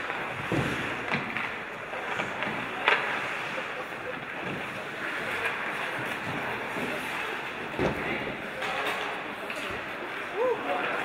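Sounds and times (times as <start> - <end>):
hockey stick hitting puck: 0.0 - 3.4
skates hissing on ice: 0.0 - 7.6
arena noise: 0.0 - 11.0.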